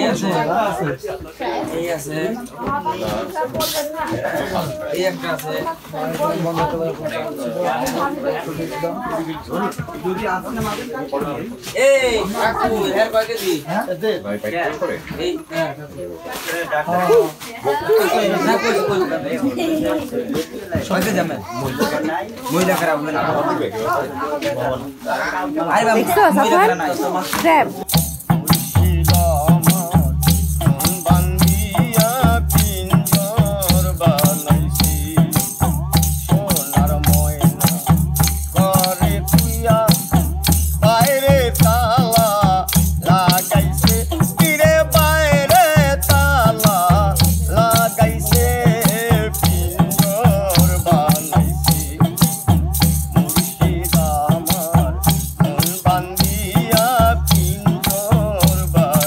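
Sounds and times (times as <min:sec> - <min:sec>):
drum beating steady rhythm: 0:00.0 - 0:13.7, 0:14.8 - 0:23.0, 0:25.7 - 0:59.0
rattling hand percussion: 0:25.9 - 0:59.0
man singing: 0:27.3 - 0:59.0.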